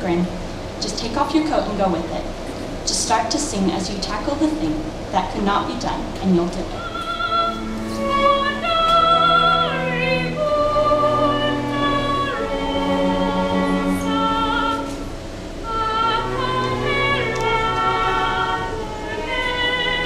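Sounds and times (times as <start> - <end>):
girl singing slow song: 6.8 - 20.0
violins and cello: 6.8 - 20.0.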